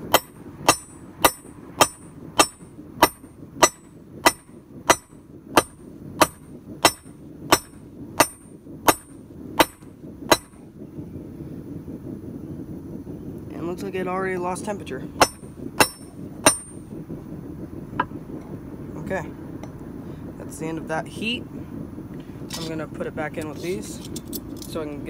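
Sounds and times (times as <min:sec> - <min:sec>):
hammer striking metal on anvil: 0:00.1 - 0:10.6, 0:15.2 - 0:16.8.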